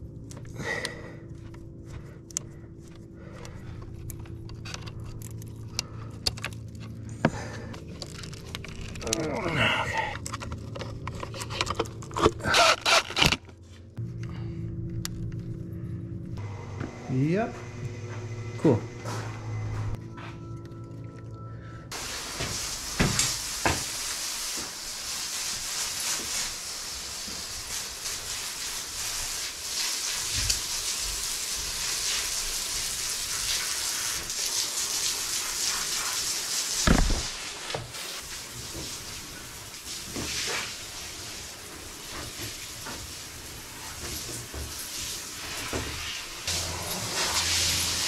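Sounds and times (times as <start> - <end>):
water running from hose: 21.9 - 48.0.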